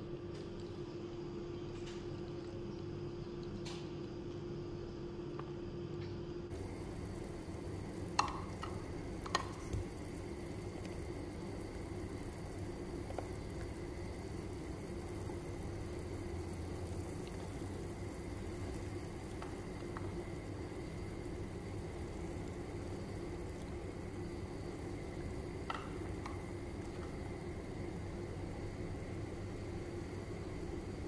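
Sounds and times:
water boiling in a pot: 0.0 - 5.2, 6.5 - 31.0.

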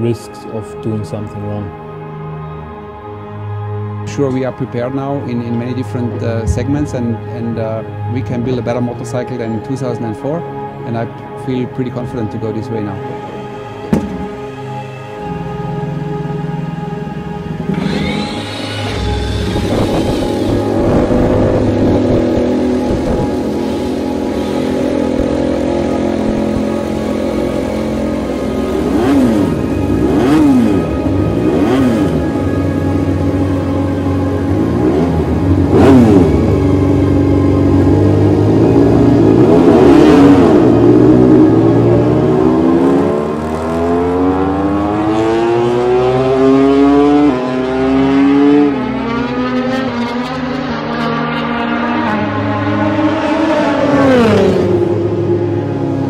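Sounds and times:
motorcycle engine revving: 15.3 - 56.0.

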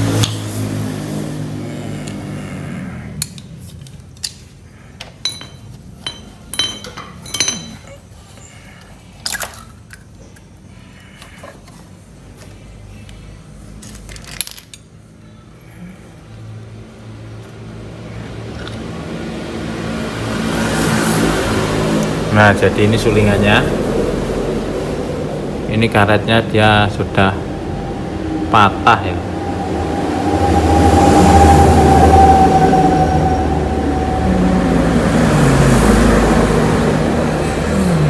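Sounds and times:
metal clinks of hand tools: 5.2 - 8.0.

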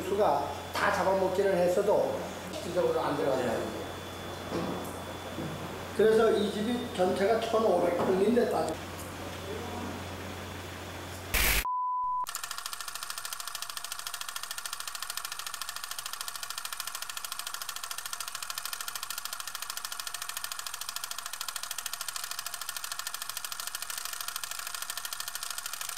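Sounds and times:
film projector clattering: 12.3 - 25.9.

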